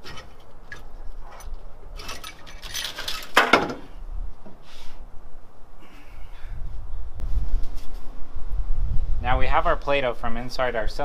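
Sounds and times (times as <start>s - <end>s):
metal engine parts clinking: 0.0s - 3.8s.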